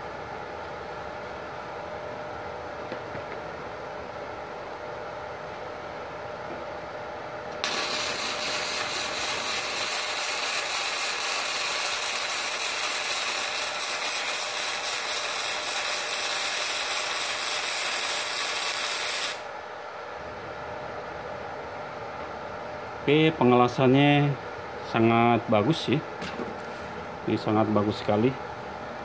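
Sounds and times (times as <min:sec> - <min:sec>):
welding arc crackling: 0:07.6 - 0:19.5.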